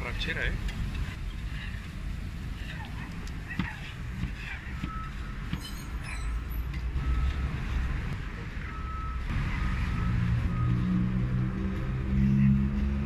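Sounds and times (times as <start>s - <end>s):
faint short squeaks: 5.6s - 6.6s
vehicle passing: 6.7s - 13.0s.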